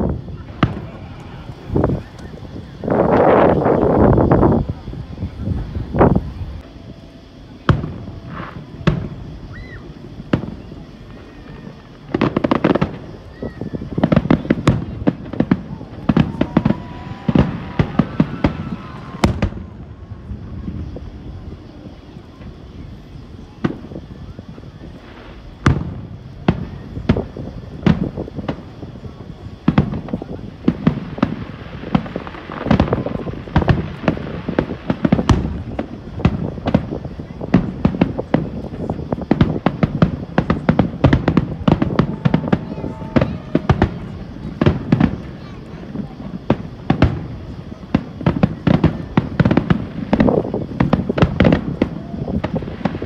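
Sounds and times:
crackling firework pops: 0.0 - 4.9, 7.6 - 21.1, 21.8 - 53.0.

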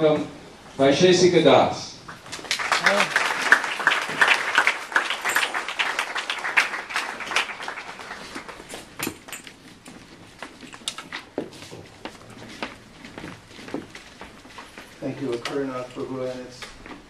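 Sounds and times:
audience applauding: 2.1 - 9.0.

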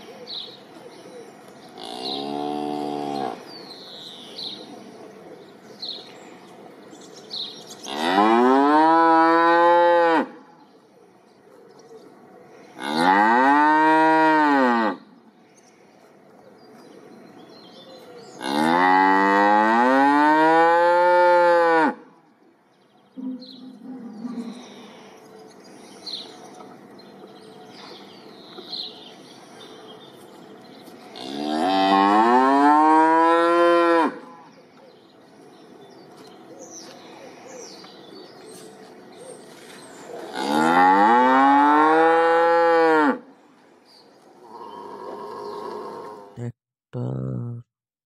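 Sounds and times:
cow mooing: 1.8 - 3.4, 40.3 - 43.2.

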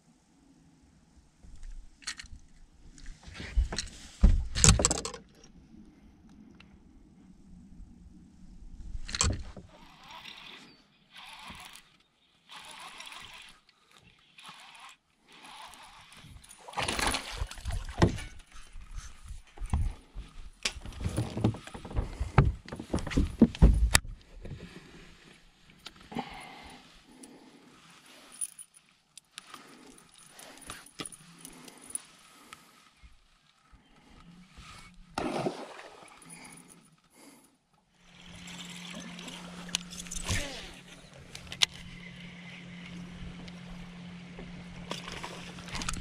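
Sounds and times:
electric trolling motor humming: 9.1 - 17.6, 38.0 - 46.0.

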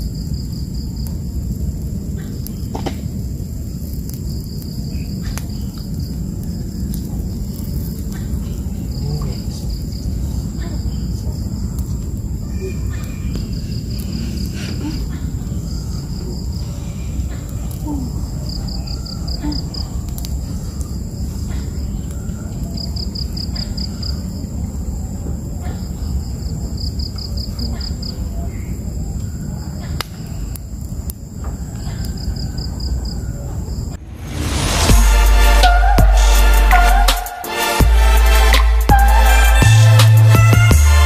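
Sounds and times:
insect chirps: 0.0 - 41.0
insects droning: 0.0 - 41.0
low rumble: 33.9 - 41.0.

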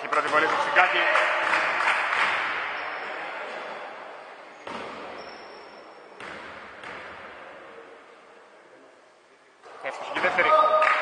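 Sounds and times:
short high-pitched squeaks: 5.1 - 6.0.

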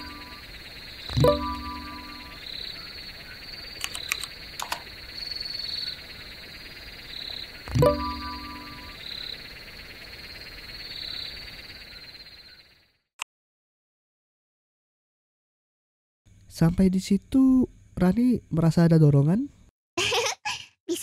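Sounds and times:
frogs croaking: 0.0 - 13.0
notification chime: 1.2 - 2.3, 7.8 - 8.8
sharp clicks: 3.8 - 4.9.

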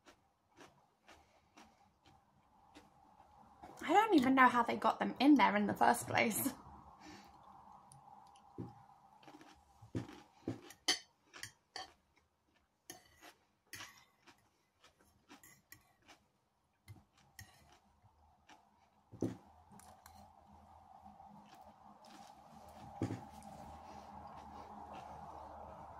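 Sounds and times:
chewing sounds: 0.0 - 3.8, 7.2 - 19.1, 19.7 - 25.9
fork scraping on ceramic plate: 12.9 - 14.2, 15.4 - 16.1, 17.4 - 17.8.

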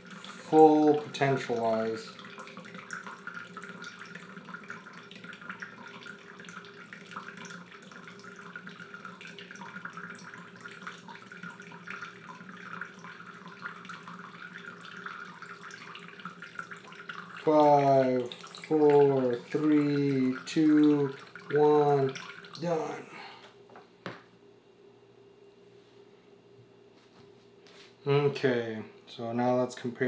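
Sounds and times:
water trickling into plastic cup: 0.0 - 23.1.

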